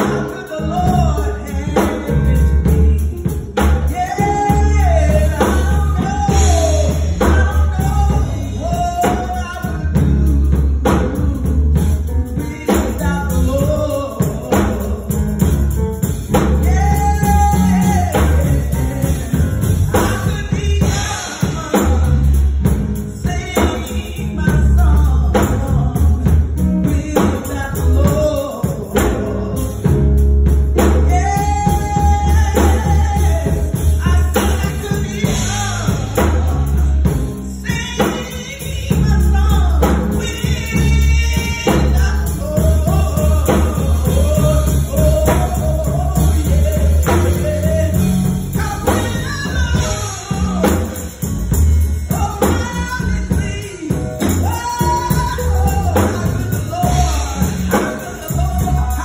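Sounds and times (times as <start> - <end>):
backing music with heavy bass: 0.0 - 59.0
woman singing gospel: 0.0 - 59.0.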